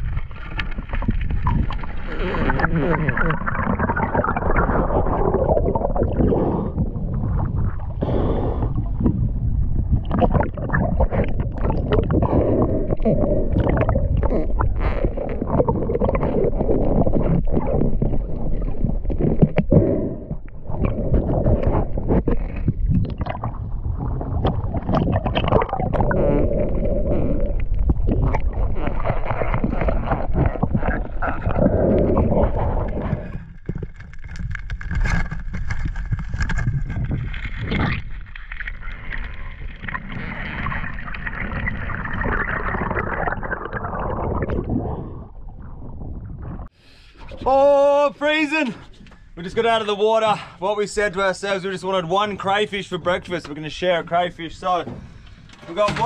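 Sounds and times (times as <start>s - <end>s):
water gurgling and sloshing: 0.0s - 47.5s.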